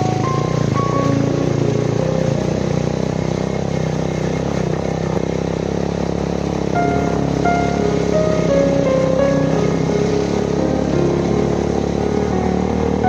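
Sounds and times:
melodic background music: 0.0s - 2.8s, 6.7s - 13.0s
motorcycle engine running: 0.0s - 13.0s
wind and road noise: 0.0s - 13.0s.

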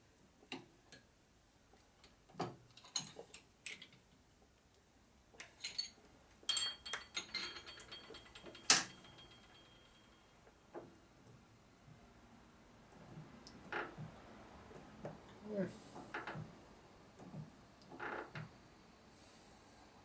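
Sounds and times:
wrench clicking and clinking: 6.5s - 9.8s
sharp ringing metal clink: 6.5s - 10.2s.

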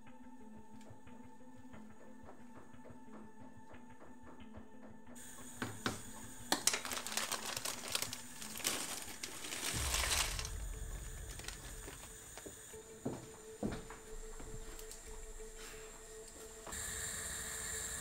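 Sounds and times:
plastic bag crinkling: 6.5s - 12.6s.

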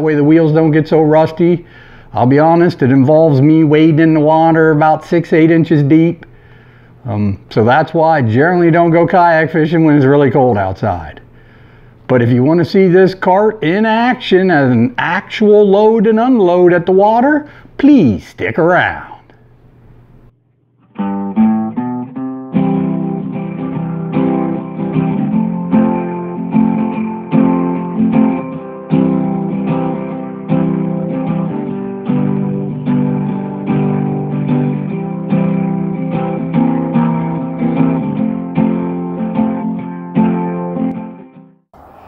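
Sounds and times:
acoustic guitar: 20.3s - 41.6s.

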